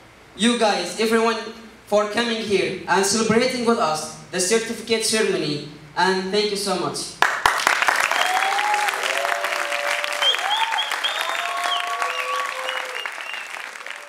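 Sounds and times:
audience applauding: 0:07.2 - 0:14.0
audience cheering: 0:07.6 - 0:14.0.

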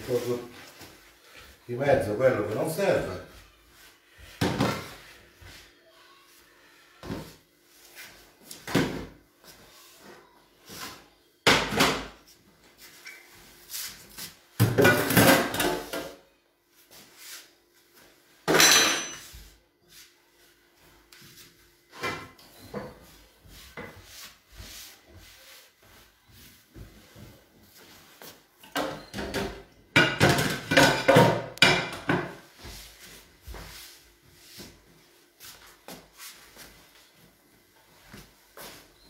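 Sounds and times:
dishes and cupboard doors knocking: 0:28.8 - 0:32.4.

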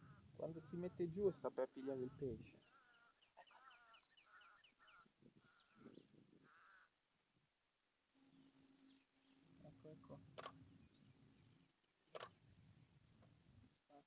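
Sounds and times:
camera shutter clicks: 0:10.4 - 0:10.6, 0:12.1 - 0:12.4.

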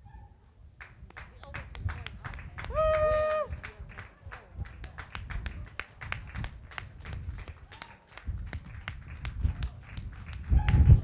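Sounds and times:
spectators clapping: 0:00.8 - 0:11.0.

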